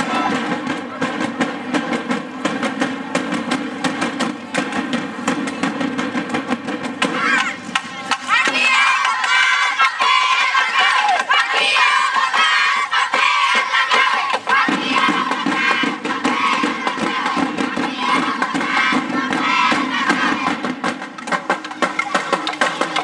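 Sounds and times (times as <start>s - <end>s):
crowd shouting and cheering: 0.0s - 1.2s, 7.0s - 20.7s
music: 0.0s - 23.0s
quick percussion beat: 0.0s - 23.0s.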